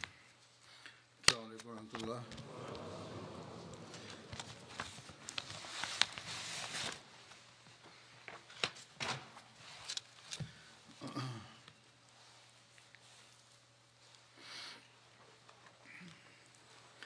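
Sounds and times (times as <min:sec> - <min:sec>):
congregation rustling and shuffling: 0:01.7 - 0:10.4.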